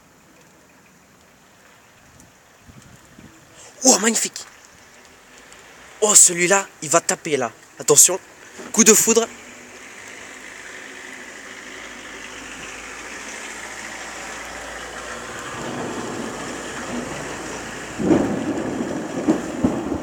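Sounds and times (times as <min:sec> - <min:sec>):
thunder rumbling and cracking: 0:13.6 - 0:20.0.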